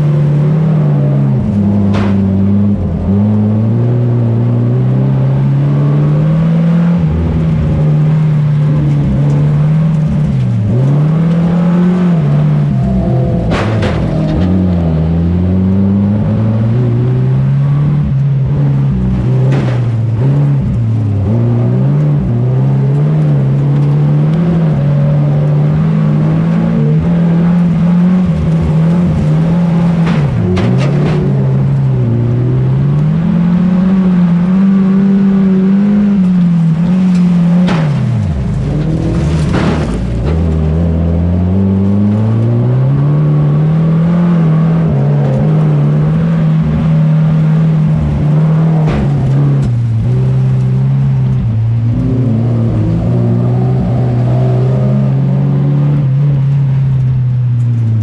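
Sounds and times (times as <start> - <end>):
car engine revving: 0.0 - 58.0
sharp knocks: 13.4 - 14.6.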